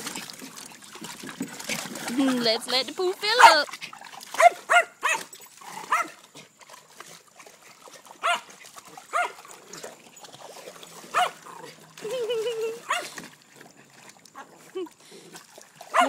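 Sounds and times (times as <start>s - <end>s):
dog barking: 3.4s - 3.6s, 4.4s - 5.3s, 5.9s - 6.2s, 8.2s - 8.5s, 9.1s - 9.4s, 11.1s - 11.4s, 12.9s - 13.2s.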